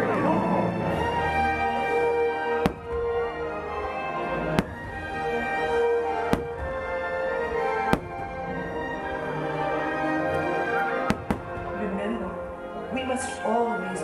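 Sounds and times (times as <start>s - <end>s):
show music: 0.0s - 14.0s
firework bangs: 2.5s - 3.5s, 4.4s - 9.1s, 10.8s - 12.1s.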